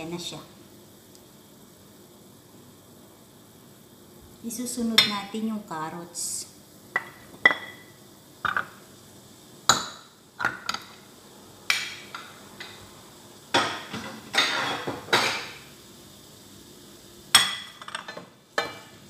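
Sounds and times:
bowl and utensils knocking on pan: 0:13.5 - 0:15.6.

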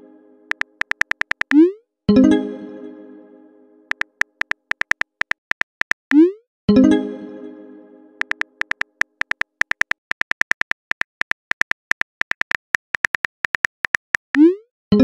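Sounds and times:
phone keyboard typing clicks: 0:00.5 - 0:01.6, 0:03.9 - 0:06.2, 0:08.2 - 0:14.4.

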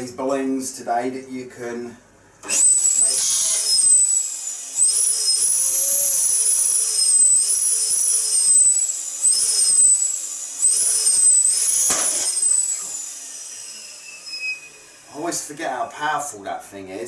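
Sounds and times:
balloon pump whining: 0:02.4 - 0:15.2.

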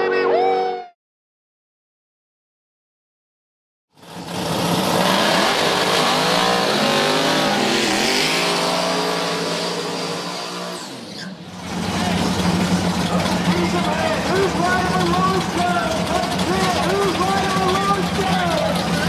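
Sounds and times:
race car engine revving: 0:04.0 - 0:19.0.

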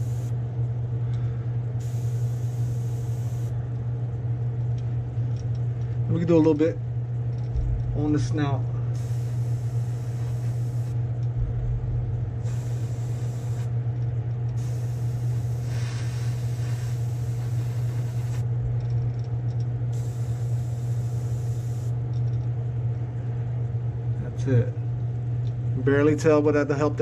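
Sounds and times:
airbrush spraying hiss: 0:00.0 - 0:00.3, 0:01.8 - 0:03.5, 0:09.0 - 0:11.0, 0:12.4 - 0:13.8, 0:14.6 - 0:18.5, 0:20.0 - 0:21.9
steady low hum: 0:00.0 - 0:27.0.

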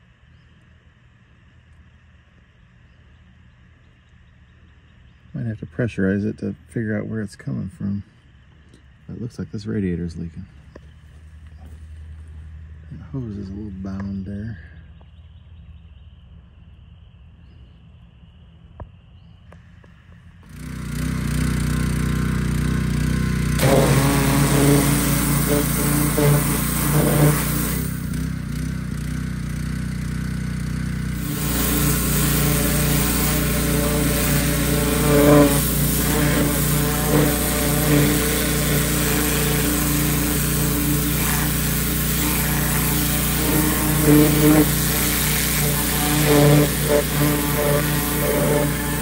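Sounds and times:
pressure washer engine running: 0:20.4 - 0:49.0
water spray hissing: 0:20.5 - 0:28.2, 0:31.1 - 0:49.0.

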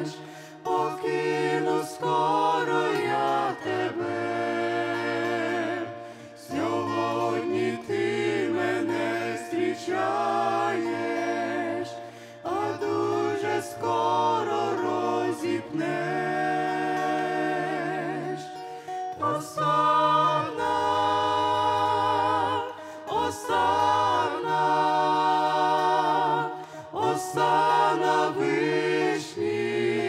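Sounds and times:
mixed choir singing a hymn: 0:00.0 - 0:30.0.

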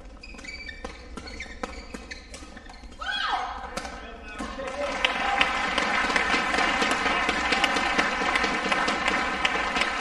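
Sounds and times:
racket hitting shuttlecock: 0:00.0 - 0:04.7.

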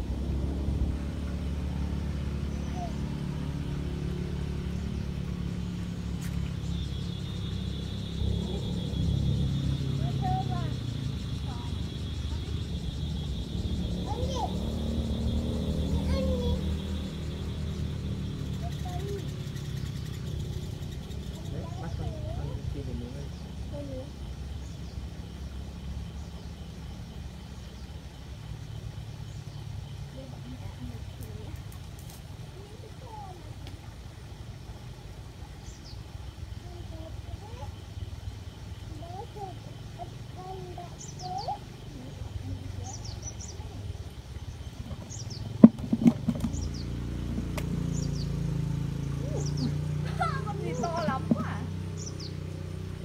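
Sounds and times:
steady low rumble: 0:00.0 - 0:18.7
faint high chirps: 0:02.4 - 0:31.6.

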